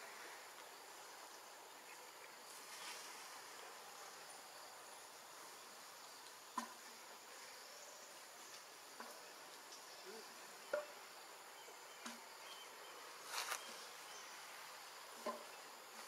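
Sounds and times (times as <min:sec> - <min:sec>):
forest insects droning: 0:00.0 - 0:16.0
brief rustle: 0:13.3 - 0:13.8.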